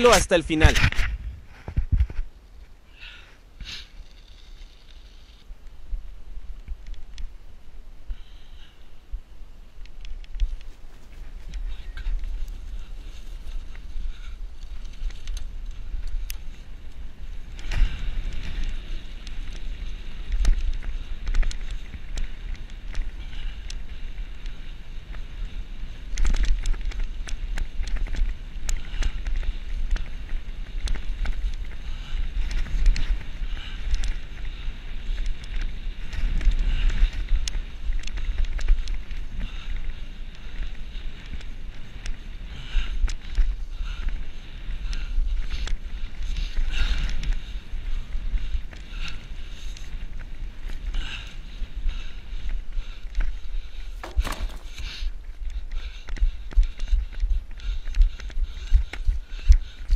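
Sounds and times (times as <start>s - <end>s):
bike rattling on dirt trail: 3.1s - 5.5s, 10.2s - 52.2s, 53.6s - 55.2s.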